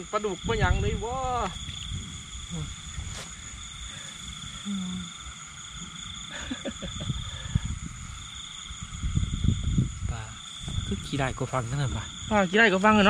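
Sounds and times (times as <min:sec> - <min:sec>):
crickets trilling: 0:00.0 - 0:13.0
grass rustling: 0:00.8 - 0:09.4.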